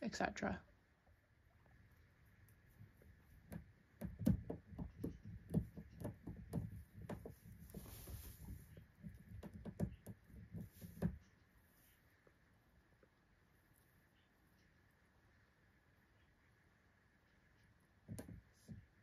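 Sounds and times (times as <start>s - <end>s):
soft irregular thumps: 1.6s - 13.2s, 18.0s - 19.0s
hay rustling: 7.4s - 8.8s.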